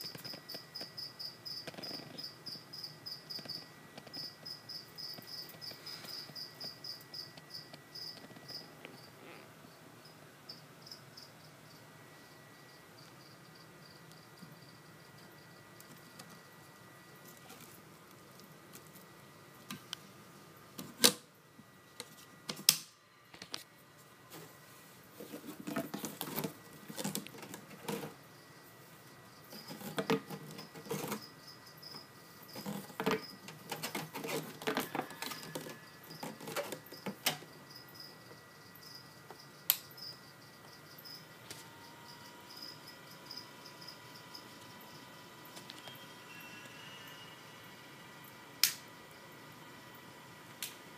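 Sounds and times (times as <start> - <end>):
cricket chirping trill: 0.0 - 17.2, 26.5 - 50.2.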